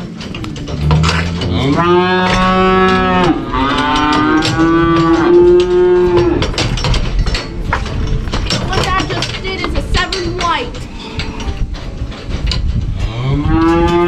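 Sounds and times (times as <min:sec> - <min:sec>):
cattle mooing: 0:00.4 - 0:06.7, 0:13.0 - 0:14.0.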